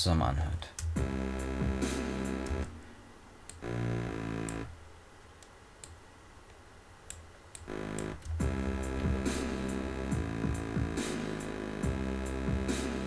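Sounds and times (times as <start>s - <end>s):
drums playback: 0.0s - 4.8s, 7.6s - 13.0s
synth bass note: 1.0s - 2.8s, 3.6s - 4.7s, 7.7s - 13.0s.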